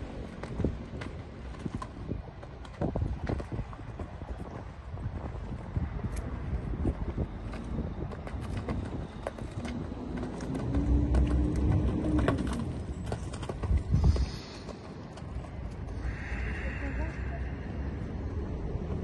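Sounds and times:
horse hoofbeats on sand: 0.0s - 15.9s
low rumble: 9.7s - 19.0s.

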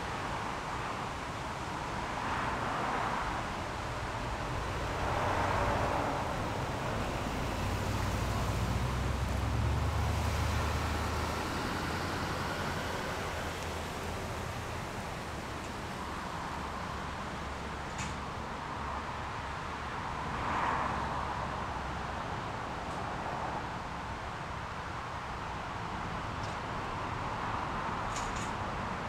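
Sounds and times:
vehicles passing: 0.0s - 29.0s
low engine rumble: 4.0s - 18.0s.

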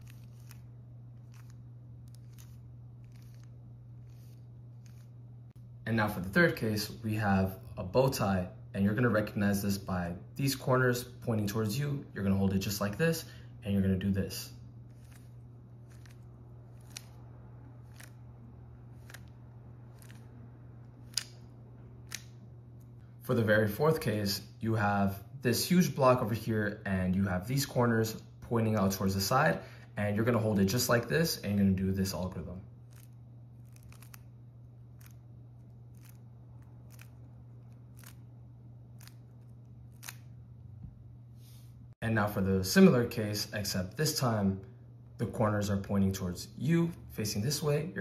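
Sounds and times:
steady low hum: 0.0s - 48.0s
puzzle cube turn clicks: 16.8s - 17.2s.

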